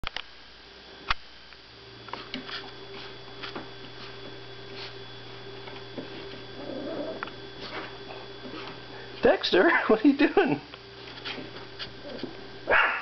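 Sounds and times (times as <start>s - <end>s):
low electrical hum: 0.0s - 13.0s
faint ticks and scratches: 2.1s - 8.8s, 10.7s - 12.4s.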